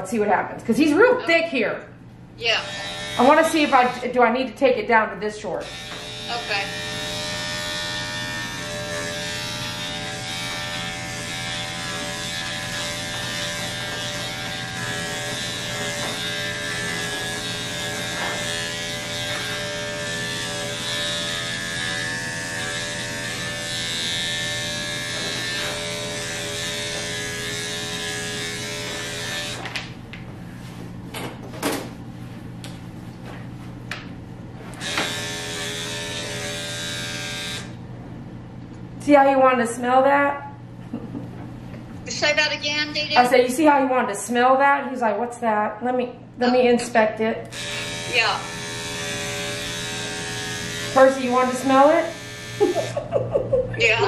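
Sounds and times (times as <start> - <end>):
electric clippers buzzing: 2.4 - 4.5, 5.5 - 30.0, 34.6 - 37.9, 46.6 - 54.0.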